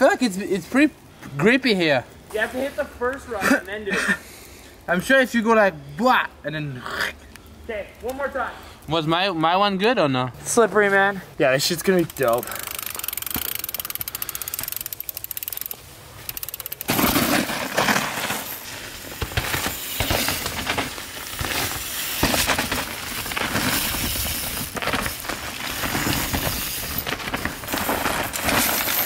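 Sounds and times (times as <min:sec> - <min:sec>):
bicycle freehub ticking: 0:11.8 - 0:16.9
chain and frame rattling: 0:11.9 - 0:18.7, 0:23.6 - 0:29.0.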